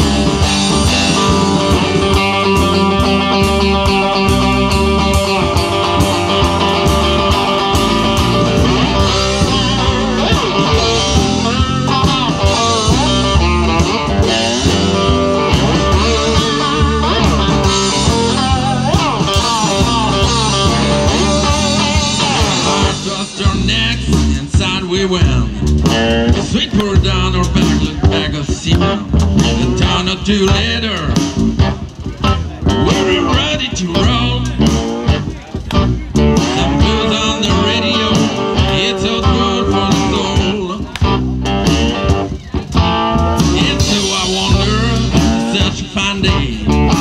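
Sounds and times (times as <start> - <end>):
harmonica bending notes: 0.0 - 24.4
cigar box guitar: 0.0 - 47.0
drums: 0.0 - 47.0.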